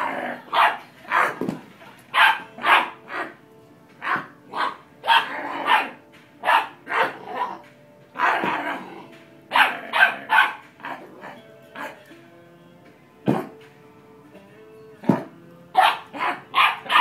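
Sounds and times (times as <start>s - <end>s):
puppy barking: 0.0s - 1.5s, 2.1s - 3.4s, 4.0s - 7.6s, 8.2s - 12.0s, 15.8s - 17.0s.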